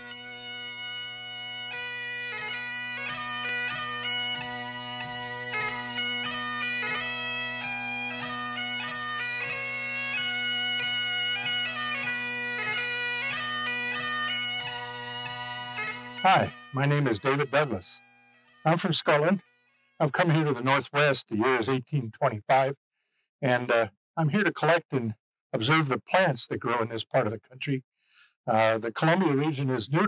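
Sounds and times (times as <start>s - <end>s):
bagpipe music: 0.0s - 21.7s.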